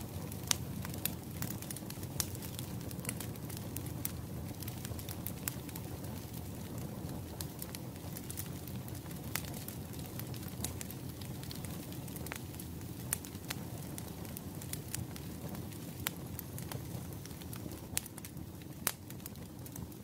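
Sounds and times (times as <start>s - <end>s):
low rush of burning: 0.0s - 20.0s
wood fire crackling: 0.0s - 20.0s.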